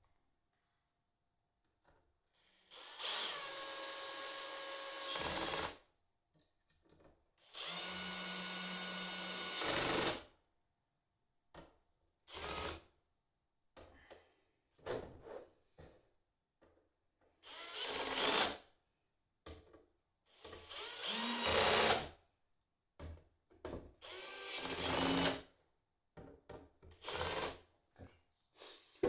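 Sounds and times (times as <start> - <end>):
cordless drill driving screws: 2.7 - 5.8, 7.4 - 10.2, 17.4 - 18.6, 20.6 - 22.1, 24.0 - 25.4, 27.0 - 27.6.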